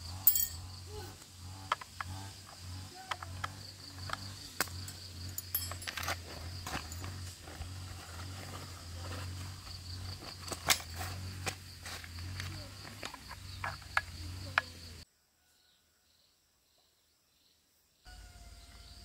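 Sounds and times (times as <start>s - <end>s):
insects trilling: 0.0s - 19.0s.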